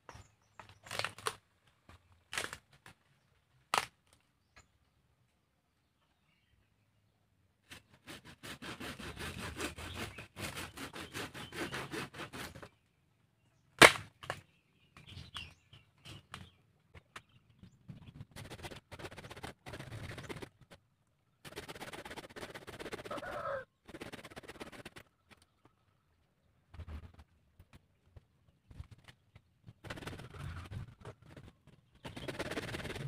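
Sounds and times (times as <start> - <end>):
hand saw cutting roots: 7.7 - 12.7
loud sharp crack: 13.8 - 14.4.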